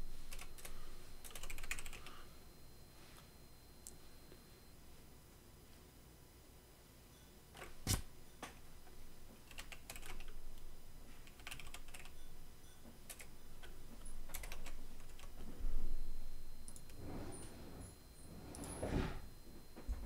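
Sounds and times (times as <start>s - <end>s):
keyboard typing: 0.3s - 2.2s, 9.4s - 10.4s, 11.2s - 12.2s, 13.0s - 15.4s.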